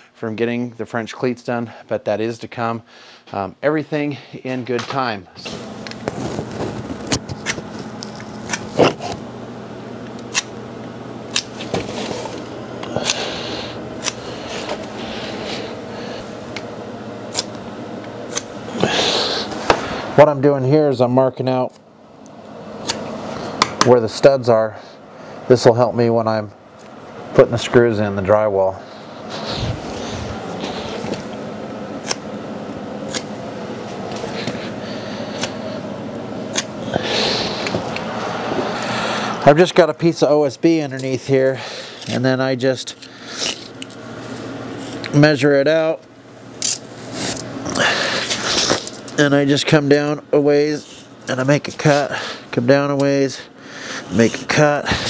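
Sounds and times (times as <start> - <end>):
steady low hum: 0.0 - 55.0
scratchy rustling: 6.0 - 7.8.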